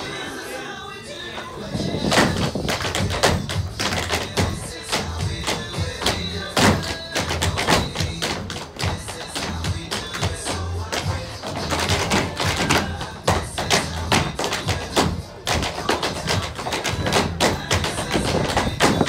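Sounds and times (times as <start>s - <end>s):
recorded dance music: 0.0s - 19.0s
tap shoes striking stage floor: 2.1s - 19.0s.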